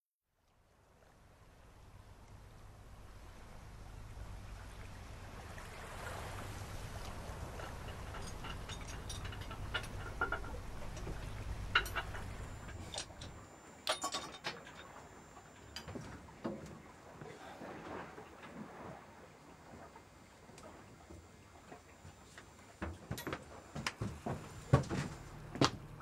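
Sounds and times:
wind and water rumble: 0:00.4 - 0:26.0
light creaks and clicks: 0:06.8 - 0:16.8
sharp metallic clinks: 0:07.5 - 0:16.0.

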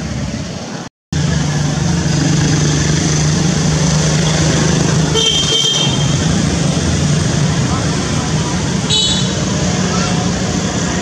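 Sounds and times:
traffic noise: 0:00.0 - 0:11.0
vehicle engine running: 0:01.1 - 0:11.0
high horn toot: 0:05.1 - 0:06.2.

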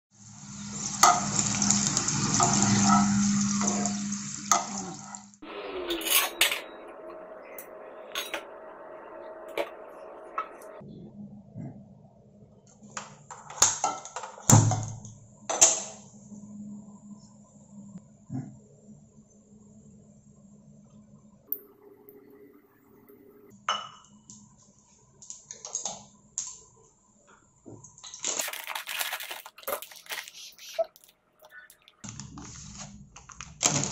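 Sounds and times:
food sizzling in hot oil: 0:00.1 - 0:05.4
plastic packet crinkling: 0:28.0 - 0:33.9.

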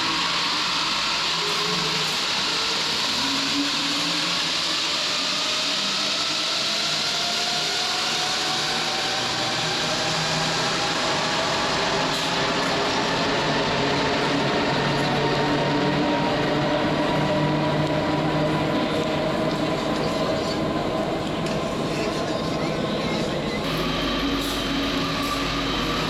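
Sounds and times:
train rolling noise: 0:00.0 - 0:26.0
train motors whining: 0:23.6 - 0:26.0.

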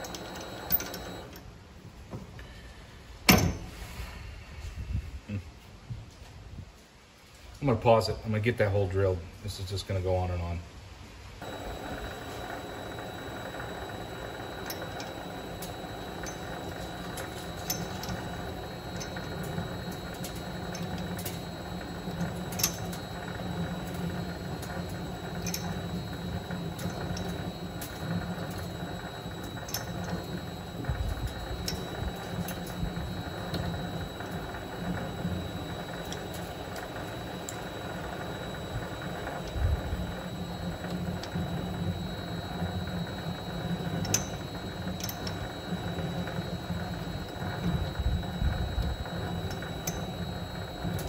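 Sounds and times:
drill bit boring workpiece: 0:00.0 - 0:01.3, 0:11.4 - 0:51.0
lathe running: 0:00.0 - 0:01.4, 0:11.4 - 0:51.0
faint motor whine: 0:00.0 - 0:03.1, 0:11.3 - 0:51.0
irregular ticks: 0:11.4 - 0:51.0.

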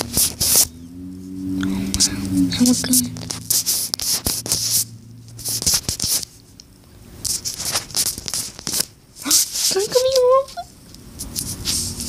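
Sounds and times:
phone handling rubbing and scratching: 0:00.0 - 0:00.7, 0:02.6 - 0:10.3
low hum: 0:00.0 - 0:07.6.

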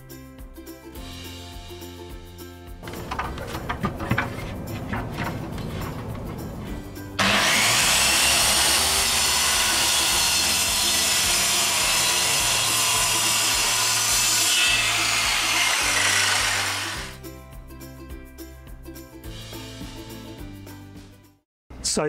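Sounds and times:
circular saw cutting plywood: 0:07.2 - 0:17.2.

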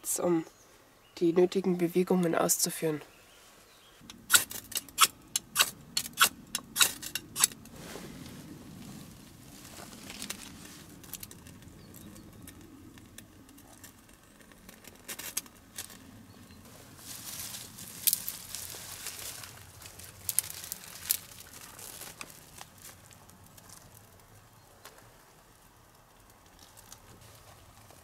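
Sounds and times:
knife scraping: 0:04.3 - 0:07.6
soft rustling: 0:07.6 - 0:12.7, 0:13.4 - 0:24.1.

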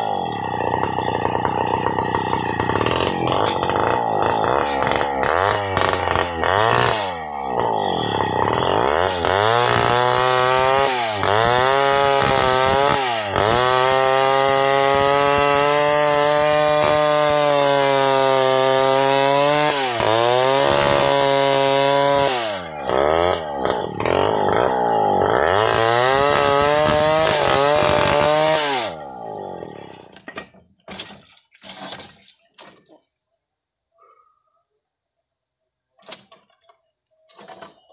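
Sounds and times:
chainsaw cutting through log: 0:00.0 - 0:30.3.

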